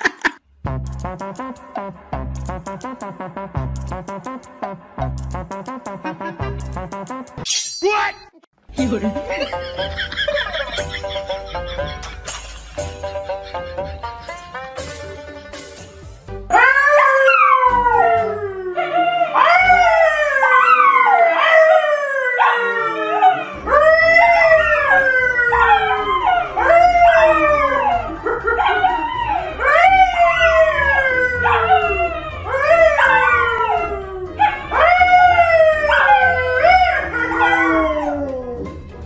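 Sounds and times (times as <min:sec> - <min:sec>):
dogs howling: 0:16.5 - 0:38.9
man howling: 0:16.5 - 0:38.9.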